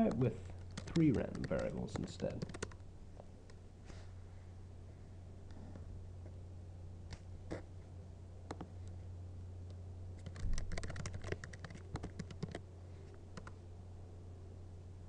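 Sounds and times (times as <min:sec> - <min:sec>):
typing on computer keyboard: 0:00.0 - 0:02.8, 0:10.2 - 0:12.6, 0:13.4 - 0:13.6
low steady hum: 0:00.0 - 0:15.0.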